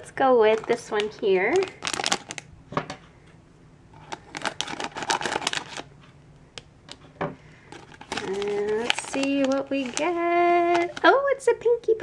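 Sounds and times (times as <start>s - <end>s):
plastic foil bag crinkling: 0.0s - 2.5s, 4.0s - 5.9s, 7.5s - 11.4s.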